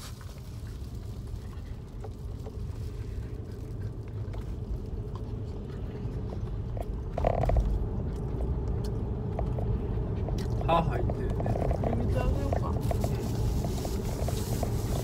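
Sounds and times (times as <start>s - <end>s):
car cabin road and engine rumble: 0.0s - 15.0s.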